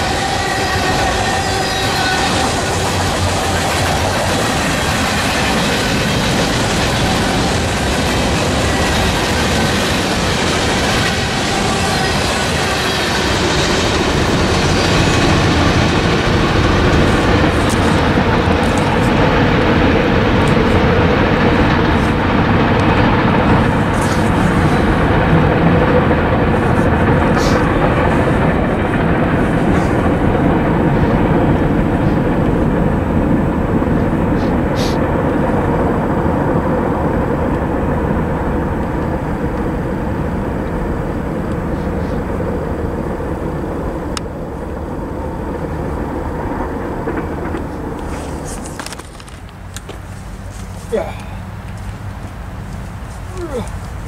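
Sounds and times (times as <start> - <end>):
high-pitched wheel squeaks: 0.0 - 5.6
train wheels clattering on rails: 0.0 - 54.0.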